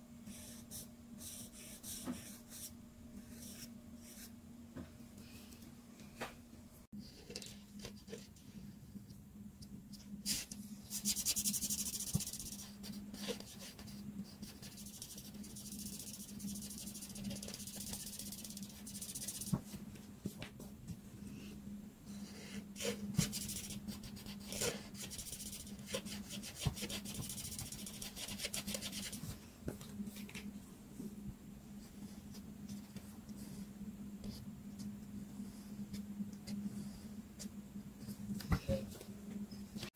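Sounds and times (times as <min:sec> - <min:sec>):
steady low hum: 0:00.0 - 0:39.9
marker rubbing across paper: 0:10.3 - 0:19.6, 0:22.8 - 0:29.2.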